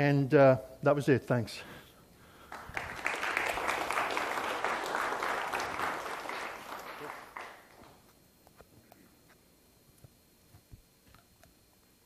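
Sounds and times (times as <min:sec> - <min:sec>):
audience applauding: 0:02.5 - 0:08.0.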